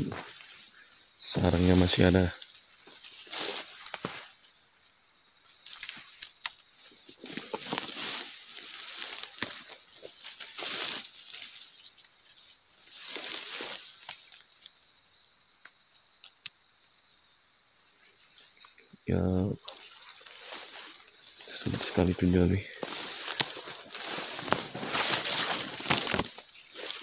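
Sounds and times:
insect chorus drone: 0.0 - 27.0
grass swishing and rustling: 3.0 - 4.3, 7.2 - 11.8, 12.8 - 14.2, 19.8 - 22.1, 22.8 - 27.0.

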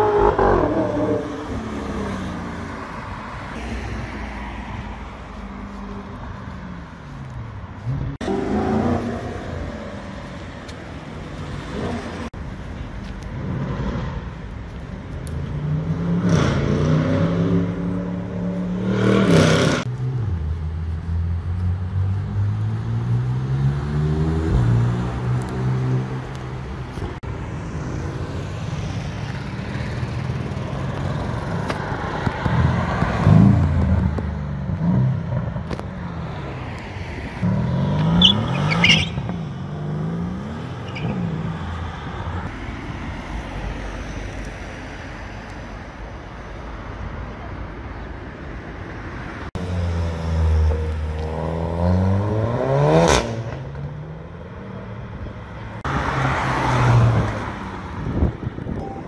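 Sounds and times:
sports car accelerating hard: 0.0 - 2.4, 49.6 - 53.8
city traffic noise: 0.0 - 59.0.

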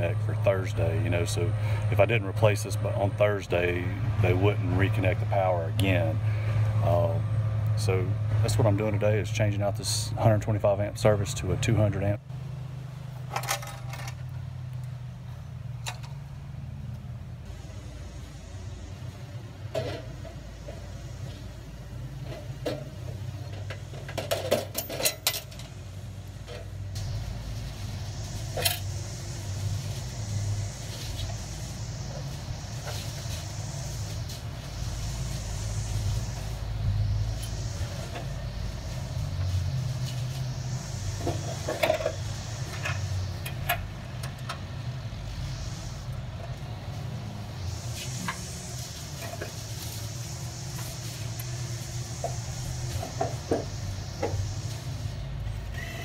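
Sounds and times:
steady low drone: 25.6 - 55.8.

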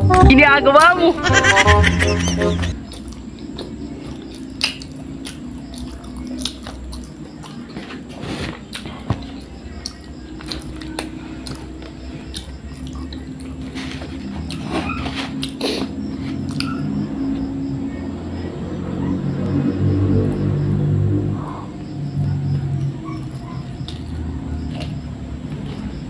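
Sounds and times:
person chewing: 2.8 - 16.7, 22.8 - 25.8.

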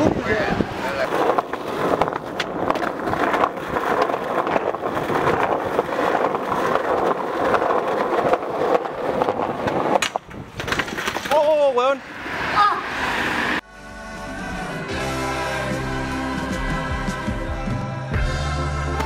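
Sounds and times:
skateboard wheels rolling on concrete: 0.0 - 13.6
skateboard ollie clack: 0.7 - 11.6.

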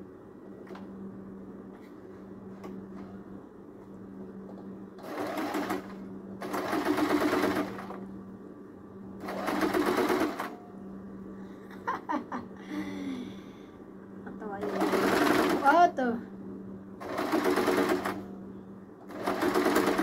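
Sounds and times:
steady low hum: 0.0 - 20.0
sewing machine stitching: 9.2 - 10.5, 14.6 - 15.8, 17.0 - 18.2, 19.1 - 20.0.

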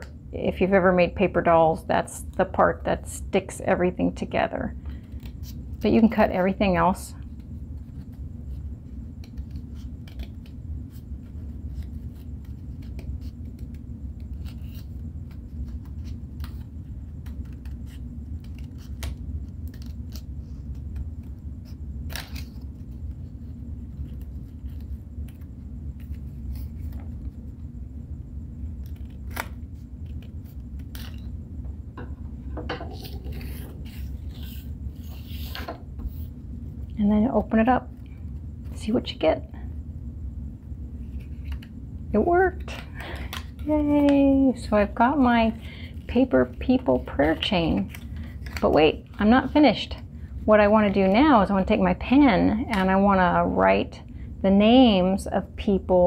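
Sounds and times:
steady low hum: 0.0 - 56.0
paper rustling: 33.0 - 36.3, 46.4 - 49.6.

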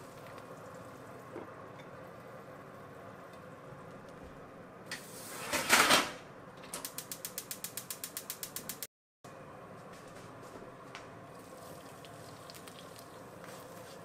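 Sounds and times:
spark igniter clicking: 6.8 - 8.9.

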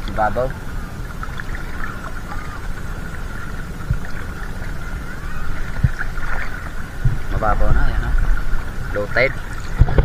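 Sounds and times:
seawater sloshing: 0.0 - 10.0
steady low rumble: 0.0 - 10.0
soft thumps: 7.0 - 7.4.

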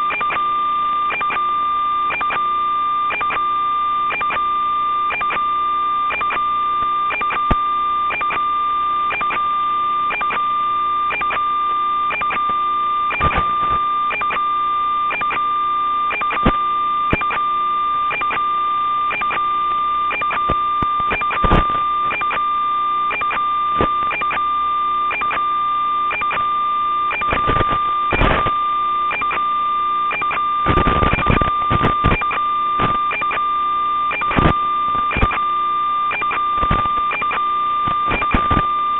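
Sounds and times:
electronic tone and hiss: 0.0 - 38.9
static crackle: 0.0 - 38.9
clicks: 12.1 - 14.4.

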